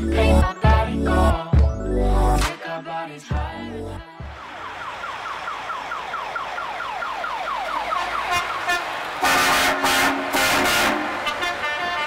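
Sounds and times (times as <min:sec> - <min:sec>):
fast falling warble siren: 0:04.2 - 0:10.2
background traffic noise: 0:04.2 - 0:12.0
truck air horn blasting: 0:07.9 - 0:12.0.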